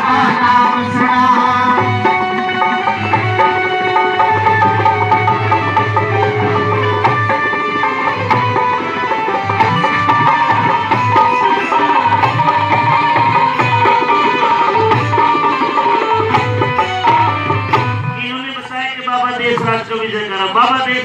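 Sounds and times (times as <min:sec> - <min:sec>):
hand drum rhythm: 0:00.0 - 0:18.3
melody instrument playing: 0:01.6 - 0:18.3.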